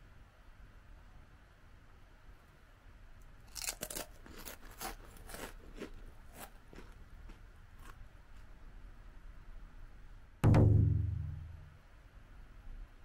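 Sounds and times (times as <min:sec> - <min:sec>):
crunchy chewing of potato chips: 0:03.4 - 0:08.6.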